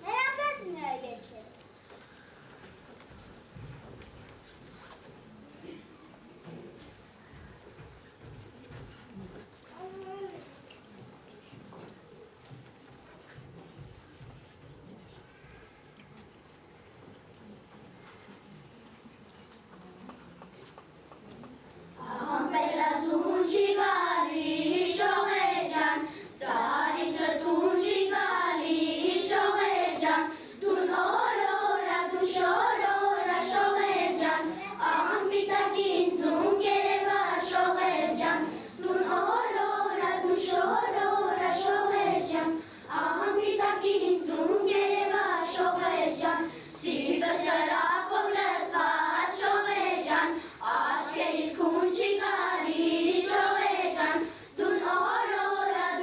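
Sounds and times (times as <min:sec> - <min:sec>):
children's choir singing: 0:22.0 - 0:56.0.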